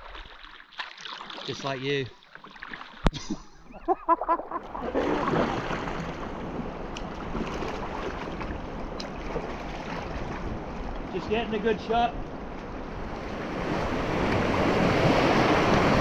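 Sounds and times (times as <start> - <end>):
flowing river water: 0.0 - 16.0
wind buffeting microphone: 4.8 - 16.0.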